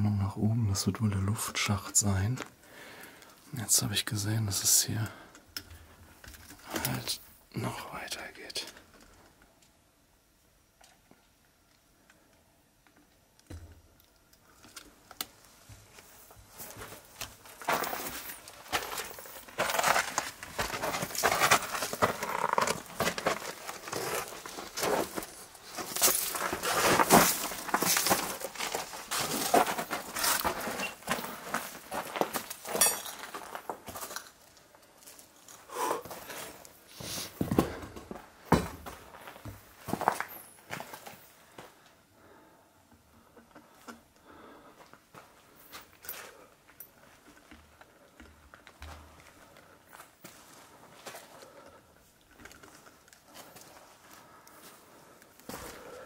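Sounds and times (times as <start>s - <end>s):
footsteps crunching on rubble: 15.4s - 41.8s, 44.3s - 51.6s, 52.2s - 56.0s.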